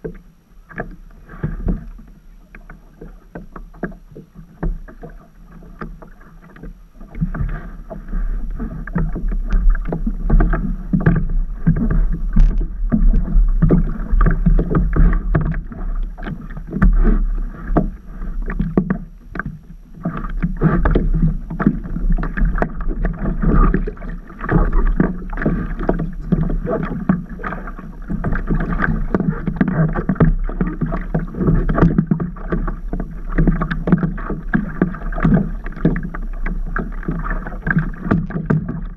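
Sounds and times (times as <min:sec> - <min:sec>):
water splashing against paddleboard: 0:00.0 - 0:38.9.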